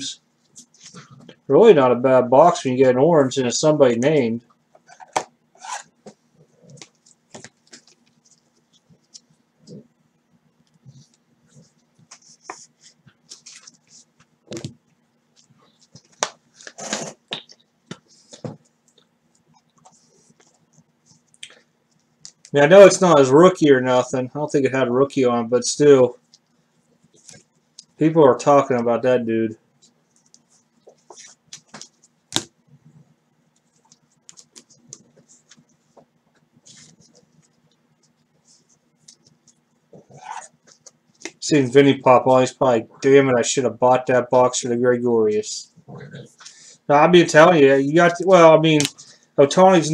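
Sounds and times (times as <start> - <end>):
faint steady hum: 0.0 - 49.9
soft rustles of handling: 10.5 - 16.8, 29.7 - 41.4.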